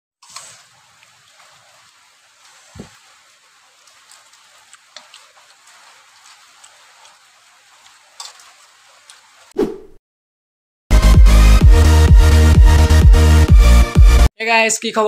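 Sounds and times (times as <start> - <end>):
rain hissing: 0.2 - 9.6
soft thump: 2.8 - 3.0.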